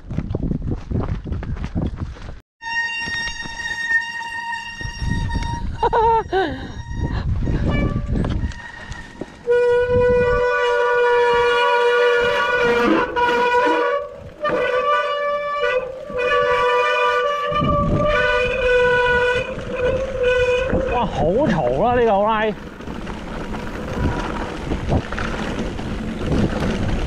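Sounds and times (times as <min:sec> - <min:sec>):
bike disc brakes squealing: 0:02.6 - 0:09.5
tyres rolling: 0:11.5 - 0:27.0.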